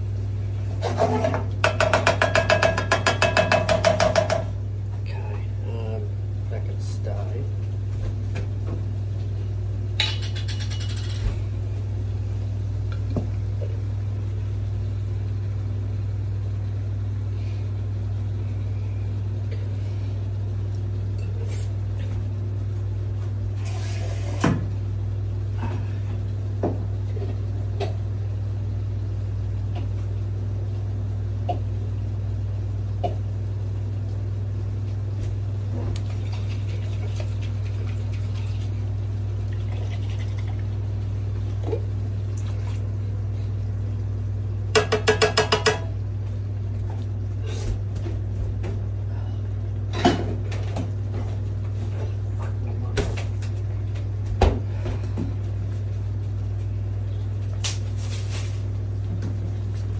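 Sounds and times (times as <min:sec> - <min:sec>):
steady low hum: 0:00.0 - 0:59.9
cookware knocks and clatters: 0:01.2 - 0:04.5.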